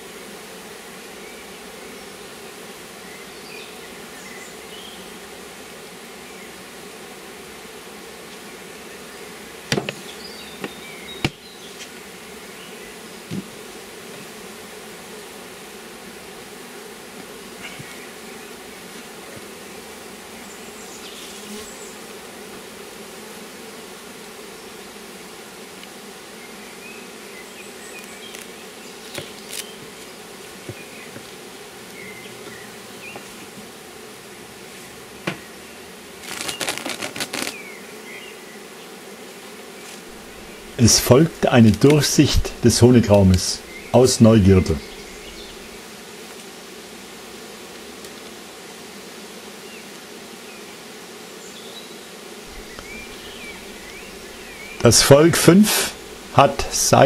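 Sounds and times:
honeybees buzzing: 0.0 - 57.0
plastic foil crinkling: 36.2 - 37.5.

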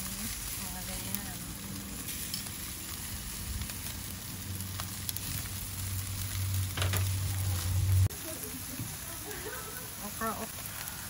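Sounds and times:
chicken sizzling on a grill: 0.0 - 11.0
low hum: 1.0 - 8.1.

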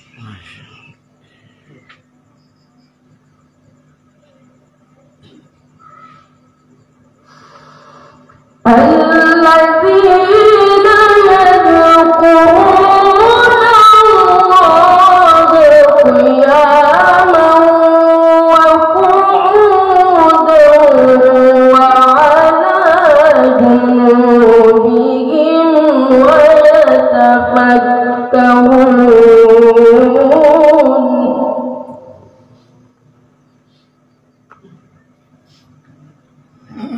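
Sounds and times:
boy reciting melodically: 0.0 - 1.0, 8.7 - 31.8.

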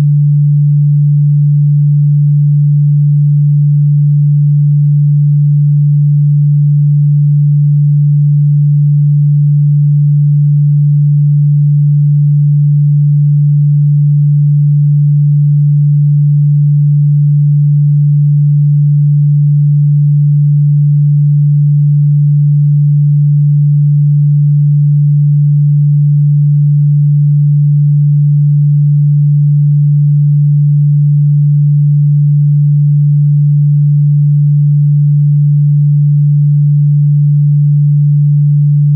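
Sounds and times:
steady low pure tone: 0.0 - 38.9.

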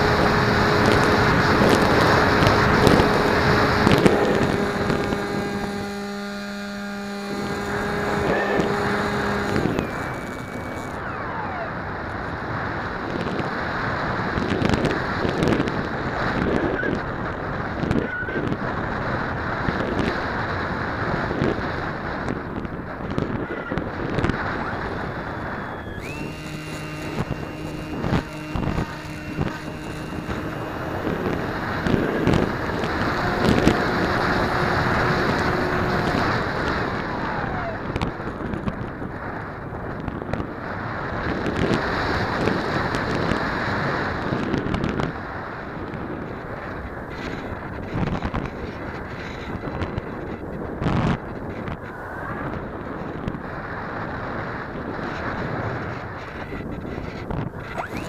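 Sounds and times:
electric motor whining: 0.0 - 13.3, 24.0 - 39.0, 57.1 - 58.0
wind buffeting microphone: 0.0 - 58.0.

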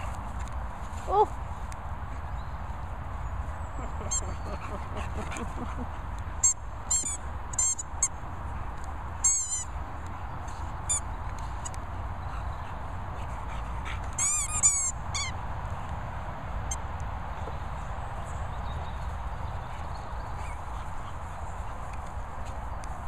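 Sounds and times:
squeaky dog toy squeaking: 6.4 - 7.8, 9.2 - 9.7, 14.2 - 15.3.

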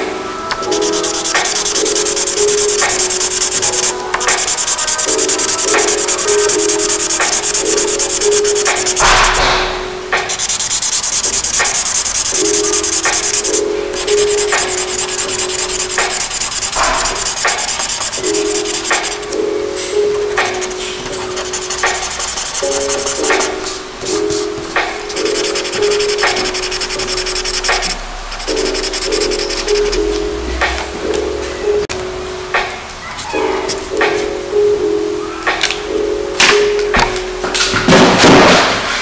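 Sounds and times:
marker scratching on paper: 0.6 - 9.5, 10.2 - 19.4, 20.1 - 30.1.

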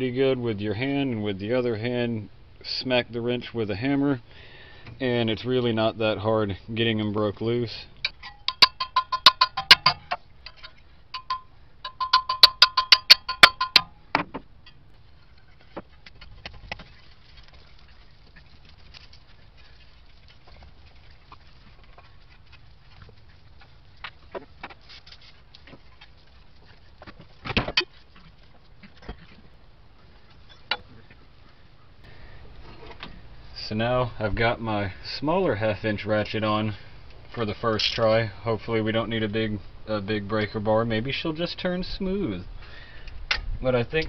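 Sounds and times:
light clinks of metal parts: 8.0 - 14.0
hammer striking wrench: 8.1 - 14.2.

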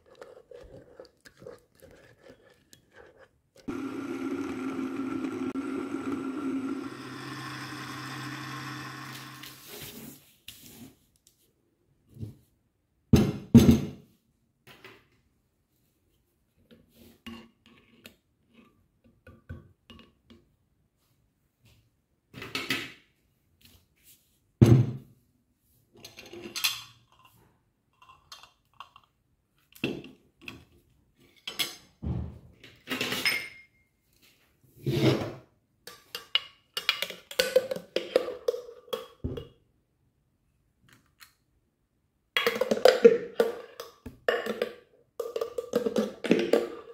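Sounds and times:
metal spoon scraping ice cream: 0.0 - 3.7
tableware knocking and clinking: 33.0 - 33.8.

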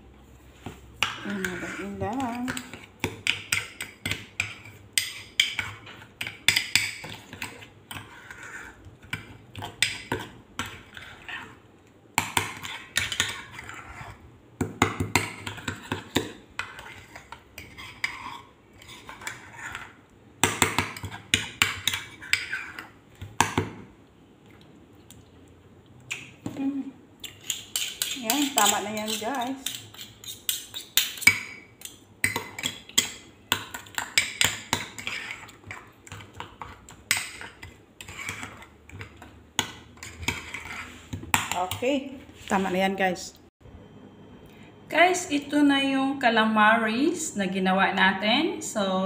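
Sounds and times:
metal spoon stirring sauce in bowl: 0.9 - 23.7, 27.2 - 42.7
spoon clinking and scraping bowl: 1.0 - 11.6, 12.2 - 14.2, 15.1 - 23.0, 27.2 - 42.7.

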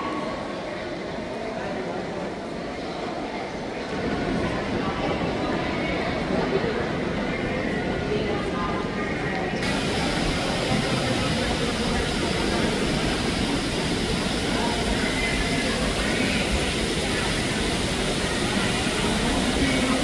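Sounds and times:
faint voices: 0.0 - 20.0
falling water rushing: 9.6 - 20.0.

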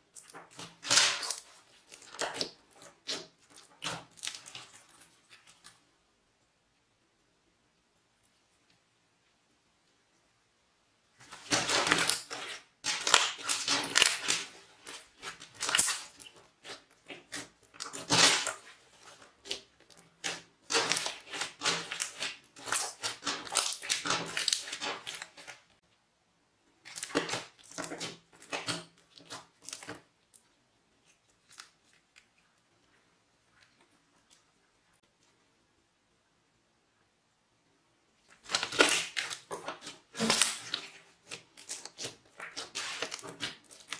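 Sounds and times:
slime squelching and crackling: 0.0 - 5.9, 11.2 - 25.8, 26.7 - 34.6, 38.2 - 43.9.

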